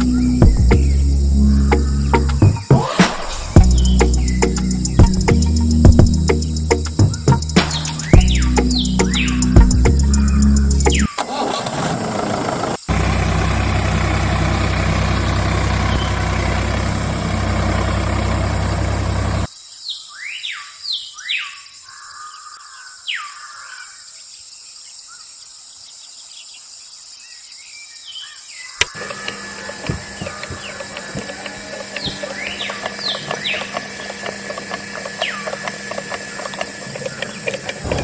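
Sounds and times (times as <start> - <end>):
bird chirps: 0.0 - 11.3, 15.6 - 16.7, 18.2 - 23.9, 27.2 - 38.0
small motor humming: 0.0 - 19.5, 28.8 - 38.0
quiet outdoor ambience: 0.0 - 38.0.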